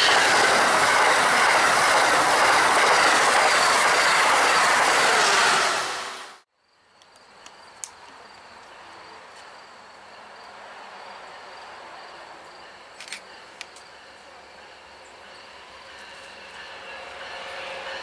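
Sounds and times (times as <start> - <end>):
distant train: 0.0 - 6.4, 7.0 - 18.0
insects chirping: 6.6 - 18.0.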